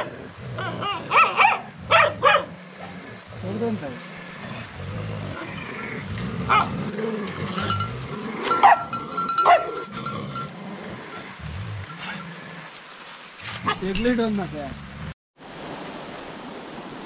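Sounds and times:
dogs growling: 0:00.0 - 0:12.7
dog yelps: 0:01.1 - 0:02.5, 0:08.5 - 0:09.7.

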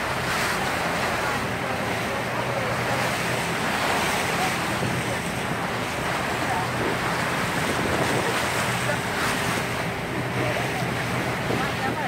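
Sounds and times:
boat engine hum: 0:00.0 - 0:12.0
water rushing past hull: 0:00.0 - 0:12.0
wind buffeting microphone: 0:00.0 - 0:12.0.

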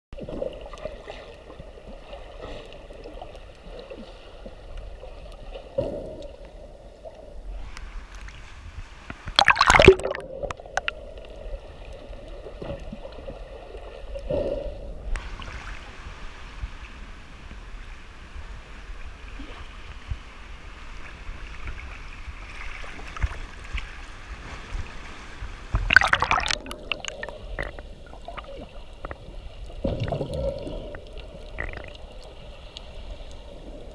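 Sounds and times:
underwater swishing and gurgling: 0:00.2 - 0:33.9
splashy bursts: 0:09.4 - 0:10.9, 0:25.8 - 0:28.4.

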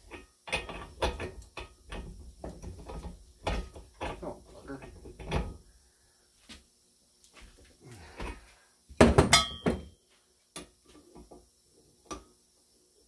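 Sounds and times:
metal clanks with ring: 0:09.3 - 0:10.0.

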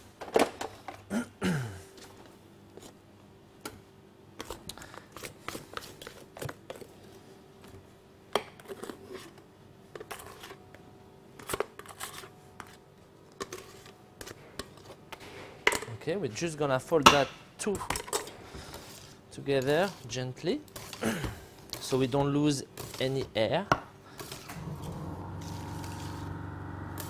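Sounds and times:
faint steady hum: 0:24.5 - 0:27.0.

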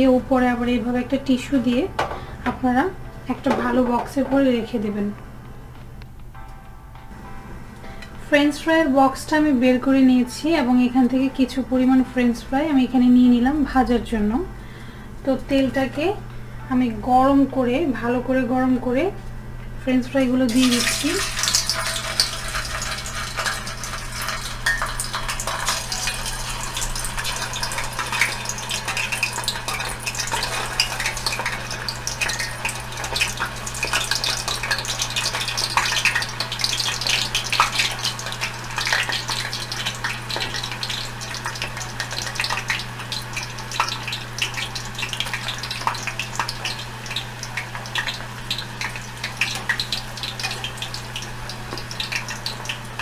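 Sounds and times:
potatoes sizzling in hot oil: 0:20.4 - 0:53.0.

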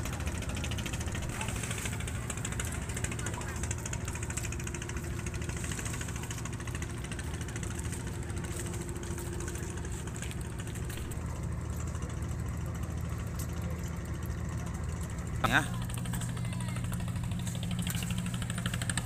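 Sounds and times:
boat engine idling: 0:00.0 - 0:19.0.

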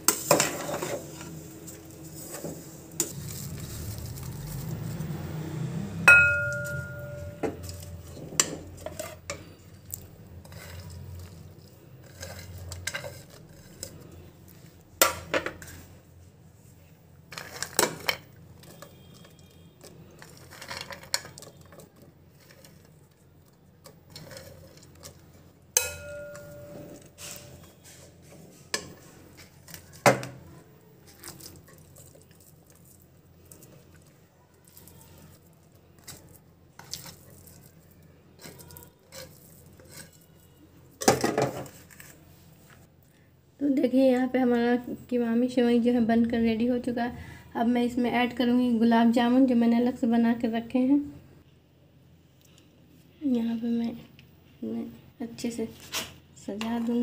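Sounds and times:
ladle scraping a metal pot: 0:00.0 - 0:04.7, 0:06.1 - 0:09.6, 0:10.4 - 0:14.2, 0:23.8 - 0:30.1, 0:38.3 - 0:42.2
ladle striking pot ringing: 0:06.0 - 0:08.0, 0:25.8 - 0:27.6.

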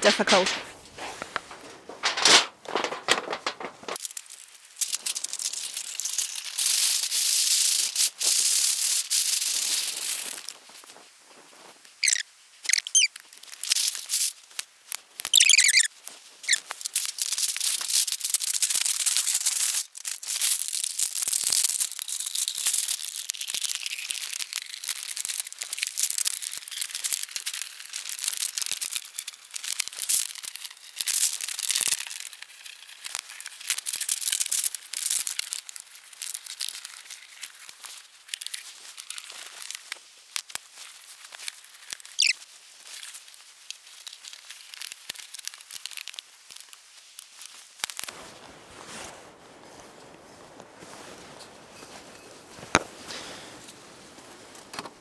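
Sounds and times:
short metal squeaks: 0:15.4 - 0:15.9.

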